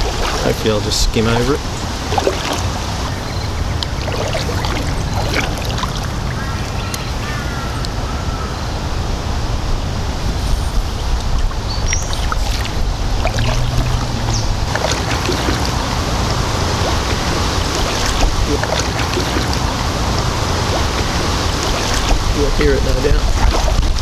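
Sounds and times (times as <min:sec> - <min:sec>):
water dripping off paddle: 0:00.0 - 0:00.6, 0:01.4 - 0:03.1, 0:11.3 - 0:24.0
wind rumble on microphone: 0:00.0 - 0:24.0.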